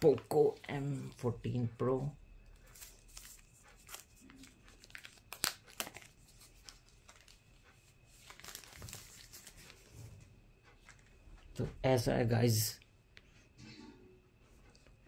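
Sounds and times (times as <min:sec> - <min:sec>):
plastic sleeve crinkling: 0:02.6 - 0:09.9.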